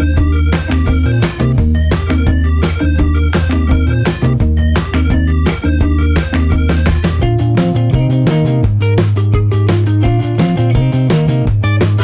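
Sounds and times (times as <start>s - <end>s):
bass line: 0.0s - 12.0s
guitar: 0.0s - 12.0s.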